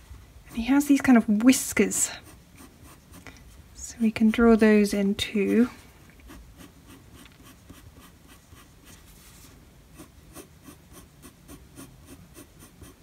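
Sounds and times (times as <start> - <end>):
pencil scratching on paper: 0.5 - 1.2, 2.0 - 3.3, 5.4 - 9.2, 9.9 - 13.0.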